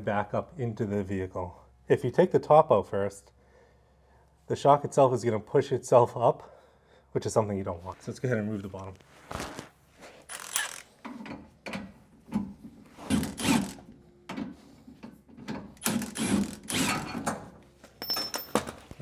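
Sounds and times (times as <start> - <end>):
impact wrench hammering: 13.1 - 14.5, 15.8 - 17.4.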